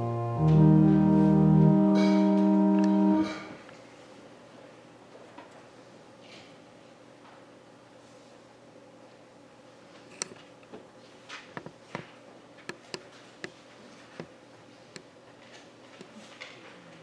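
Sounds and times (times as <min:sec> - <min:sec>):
steady low hum: 0:00.0 - 0:05.1.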